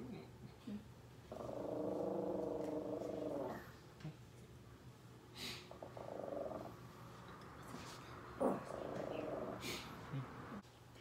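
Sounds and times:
small dog growling: 1.3s - 3.8s, 5.7s - 6.8s, 8.4s - 10.3s.

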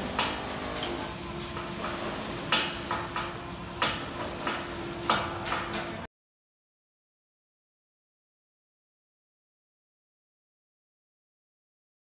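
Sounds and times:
steady hum: 0.0s - 6.1s.

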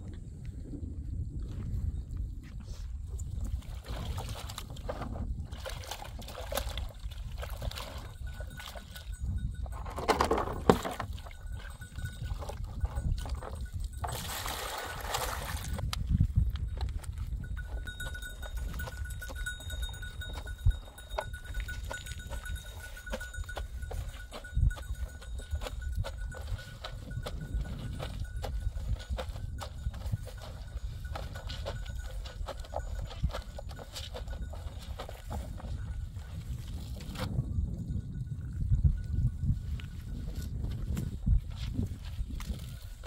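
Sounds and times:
wet clothes sloshing in water: 5.5s - 9.0s.

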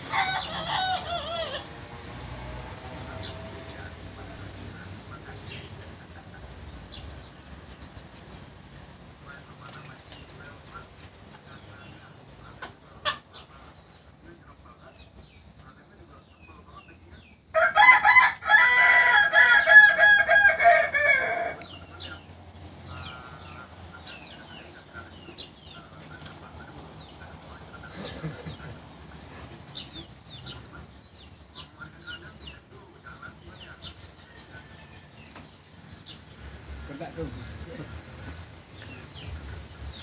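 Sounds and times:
cockerel crowing: 0.0s - 1.8s, 17.5s - 22.0s.

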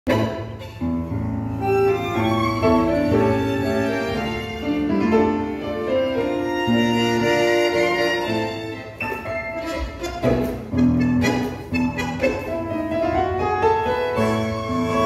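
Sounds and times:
piano: 0.1s - 15.0s
violin melody: 0.1s - 15.0s.

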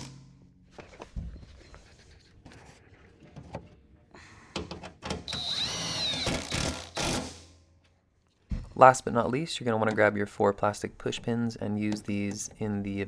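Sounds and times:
impact wrench whining: 5.1s - 7.5s.

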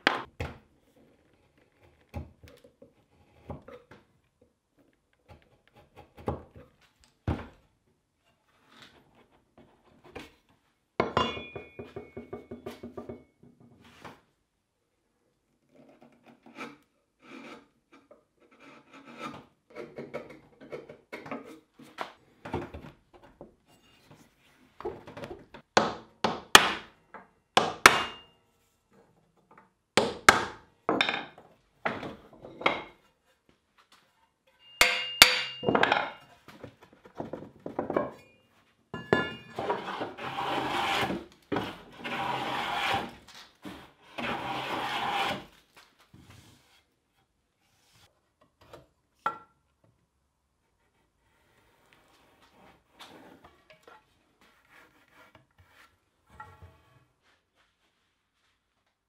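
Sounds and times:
chisel scraping wood: 15.6s - 20.8s, 39.5s - 45.5s, 50.8s - 56.7s
hand plane strokes on wood: 39.5s - 45.6s.

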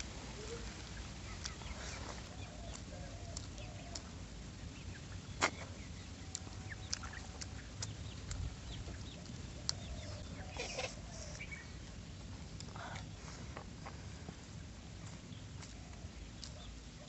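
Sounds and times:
wet eating sounds: 0.4s - 4.5s, 5.1s - 11.9s.

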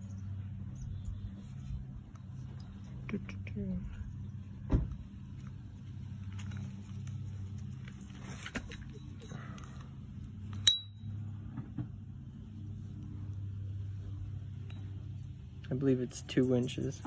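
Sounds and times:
steady low hum: 0.0s - 17.0s
sharp metallic clink: 10.5s - 11.4s.

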